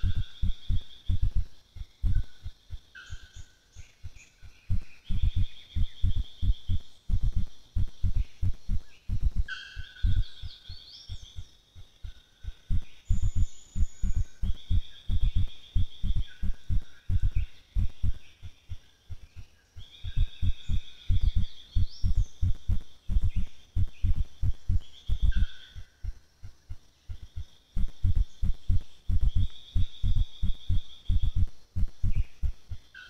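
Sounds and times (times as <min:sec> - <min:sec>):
muffled low thumps: 0:00.0 - 0:02.9, 0:04.6 - 0:10.6, 0:12.4 - 0:19.2, 0:20.0 - 0:32.9
high buzzing insect trill: 0:00.0 - 0:03.8, 0:11.3 - 0:18.3, 0:20.0 - 0:26.6, 0:27.2 - 0:33.0.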